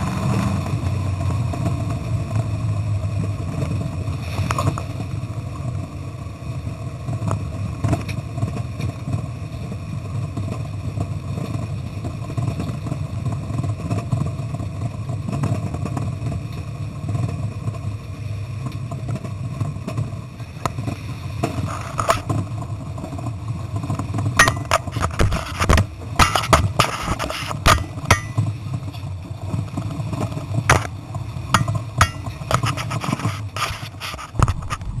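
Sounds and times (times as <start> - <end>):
engine droning: 0.0 - 35.0
clicks knocks and rattles: 24.4 - 28.5.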